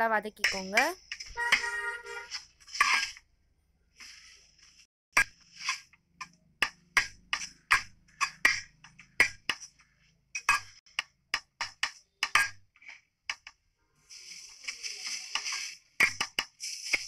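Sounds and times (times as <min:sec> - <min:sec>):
spatula scraping frying pan: 0:00.4 - 0:03.2, 0:04.0 - 0:06.0, 0:14.1 - 0:17.0
steady hiss: 0:14.0 - 0:17.0.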